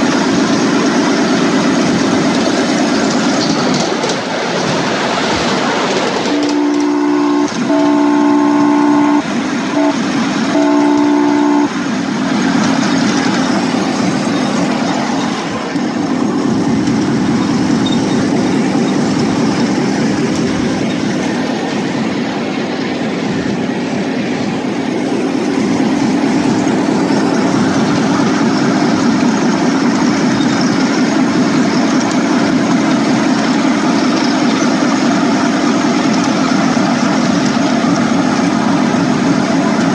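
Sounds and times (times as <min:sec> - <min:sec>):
locomotive running on rails: 0:00.0 - 0:39.9
miniature locomotive horn blasts: 0:06.2 - 0:20.6.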